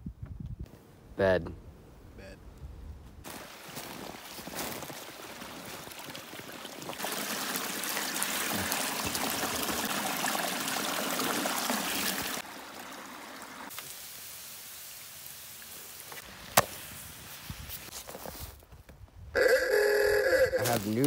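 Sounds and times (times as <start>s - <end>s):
water splashing around plastic jug: 4.4s - 13.7s.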